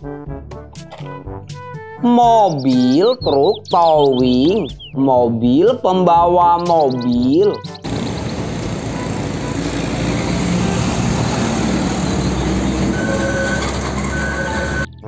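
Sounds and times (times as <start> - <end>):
truck passing: 7.8 - 15.0
faint high squeals: 12.9 - 14.9.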